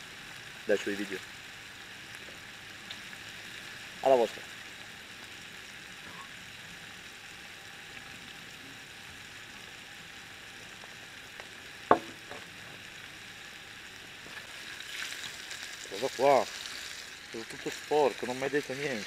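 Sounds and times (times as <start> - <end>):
sausage sizzling on a griddle: 0.0 - 19.0
sharp knock: 11.9 - 12.4.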